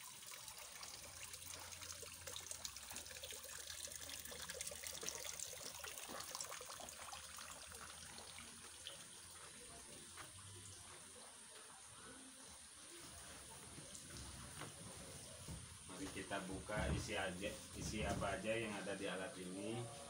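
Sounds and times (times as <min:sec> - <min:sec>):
water trickling and splashing: 0:00.0 - 0:20.0.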